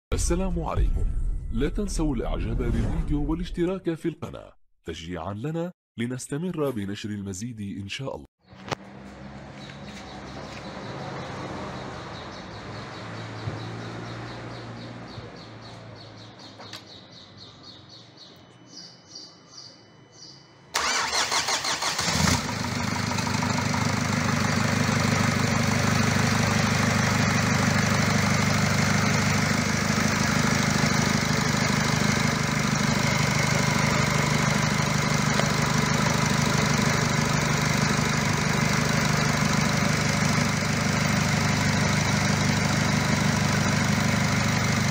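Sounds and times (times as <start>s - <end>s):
engine starter cranking: 20.8s - 23.3s
diesel engine idling: 20.8s - 44.9s.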